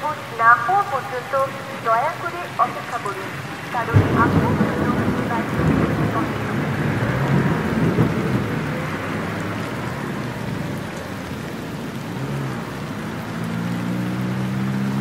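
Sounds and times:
steady rain: 0.0 - 15.0
thunder rolling: 1.3 - 12.8.

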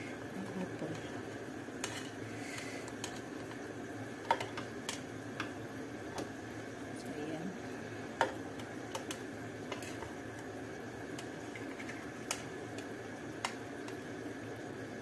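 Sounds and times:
sauce simmering in frying pan: 0.0 - 15.0
metal fork clicking on pan: 8.9 - 9.9.

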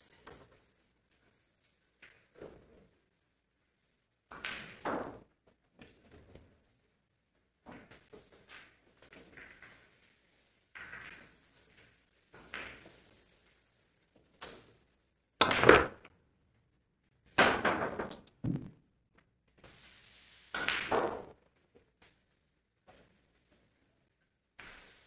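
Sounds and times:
pool balls clacking: 15.4 - 16.1, 17.4 - 18.9, 20.6 - 21.5.

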